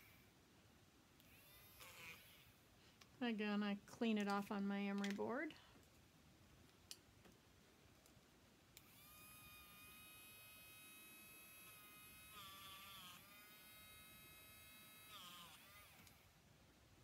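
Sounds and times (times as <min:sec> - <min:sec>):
electric eraser whirring: 0:01.3 - 0:02.5, 0:08.8 - 0:16.2.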